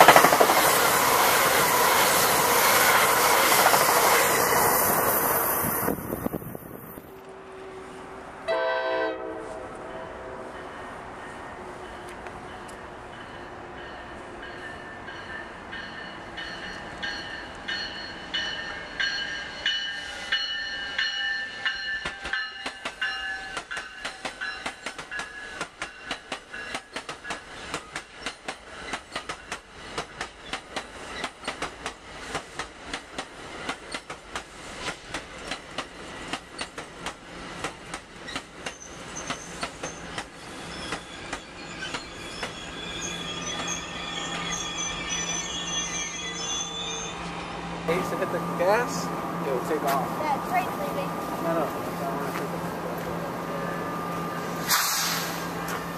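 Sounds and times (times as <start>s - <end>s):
train wheels clicking over rail joints: 0.0s - 4.5s, 21.6s - 42.8s
electric locomotive whine and hum: 0.0s - 55.9s
high ringing tones: 38.8s - 49.0s.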